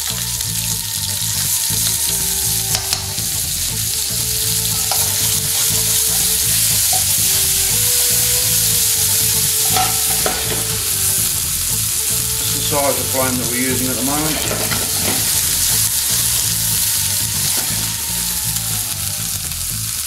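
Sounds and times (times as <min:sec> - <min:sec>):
low rumble: 0:00.0 - 0:20.0
onions sizzling in oil: 0:00.0 - 0:20.0
metal spoon scraping a pan: 0:04.7 - 0:07.3, 0:08.8 - 0:11.0.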